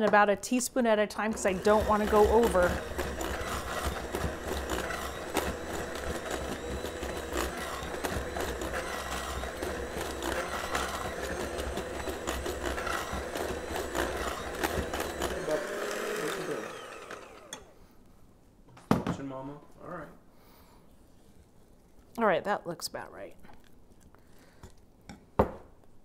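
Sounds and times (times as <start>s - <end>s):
electric hand mixer whipping icing: 1.1s - 17.8s.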